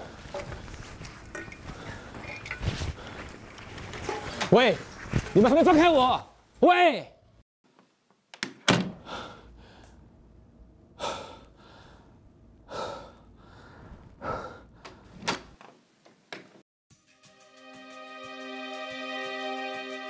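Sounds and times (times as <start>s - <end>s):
man breathing hard: 9.0s - 10.0s, 11.0s - 15.2s.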